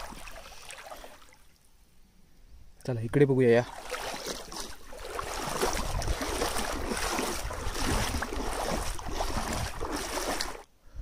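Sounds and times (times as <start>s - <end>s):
stream water rushing: 0.0s - 1.5s, 3.7s - 10.6s
wind rumbling on microphone: 4.9s - 11.0s.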